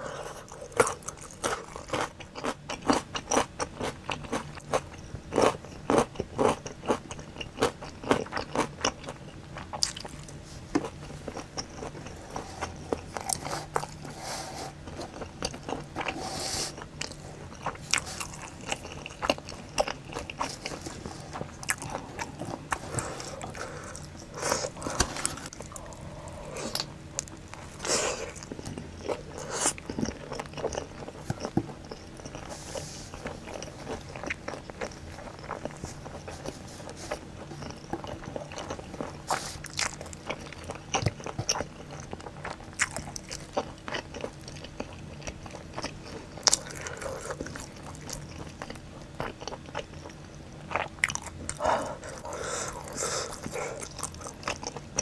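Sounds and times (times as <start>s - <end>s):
crunchy chewing: 0.0s - 55.0s.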